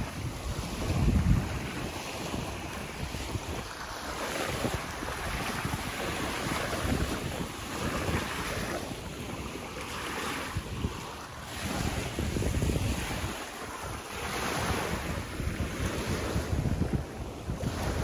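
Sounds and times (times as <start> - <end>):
waves washing onto shore: 0.0 - 18.0
wind rumbling on microphone: 0.0 - 18.0.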